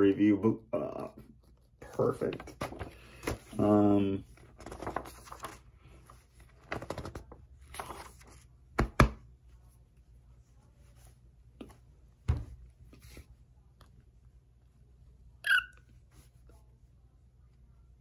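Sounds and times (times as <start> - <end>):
magazine pages rustling: 1.2 - 8.6.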